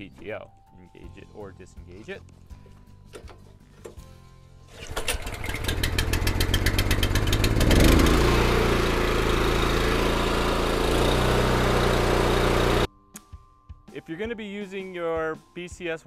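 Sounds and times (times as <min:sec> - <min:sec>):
engine pull-started and running: 0:04.7 - 0:12.9.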